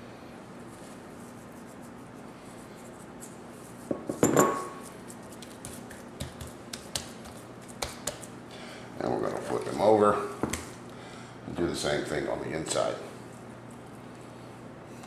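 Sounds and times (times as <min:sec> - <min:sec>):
glass bowl clinking: 0:04.0 - 0:04.8.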